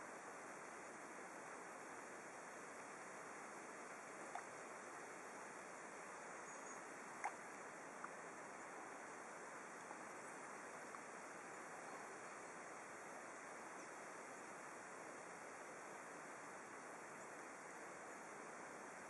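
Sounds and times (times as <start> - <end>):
faint steady hiss: 0.0 - 19.0
faint ticks: 3.8 - 4.7, 6.5 - 8.2, 10.8 - 11.1.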